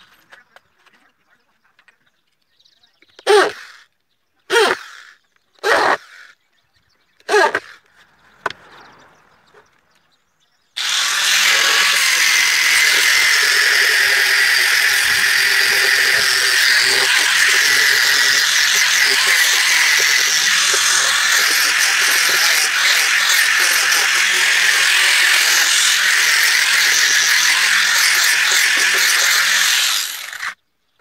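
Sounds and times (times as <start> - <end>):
angle grinder whining on wood: 10.8 - 30.6
electric drill boring into wood: 10.8 - 30.6.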